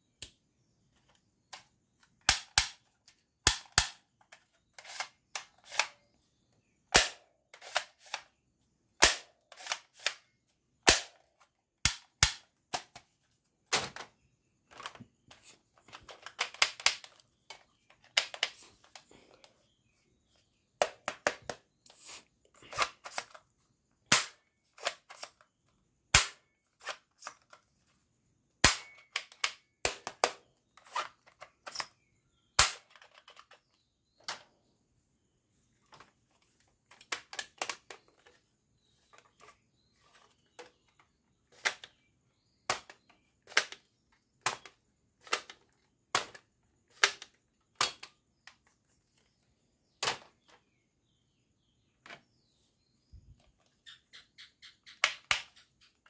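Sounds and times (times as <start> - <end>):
plastic toy guns clicking: 1.5 - 6.0, 6.9 - 8.3, 9.0 - 13.0, 15.9 - 19.0, 22.7 - 23.4, 24.1 - 25.5, 26.1 - 27.6, 28.6 - 31.9, 32.6 - 33.6, 36.9 - 38.4, 42.7 - 48.2, 55.0 - 55.6
plastic rattling: 12.6 - 19.6, 22.6 - 23.5, 28.8 - 32.0, 32.8 - 34.5.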